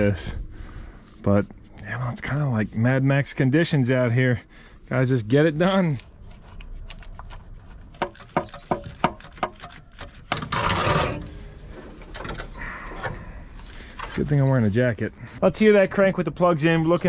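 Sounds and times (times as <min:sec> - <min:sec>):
socket ratchet clicking: 0:06.9 - 0:10.2.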